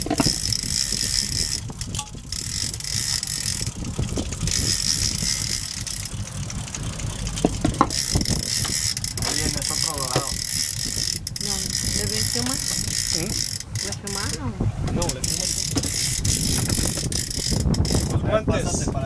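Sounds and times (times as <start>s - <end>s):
sharp clicks: 0.0s - 18.2s
fishing reel whirring and ratcheting: 0.0s - 18.4s
wind on microphone: 0.0s - 19.0s.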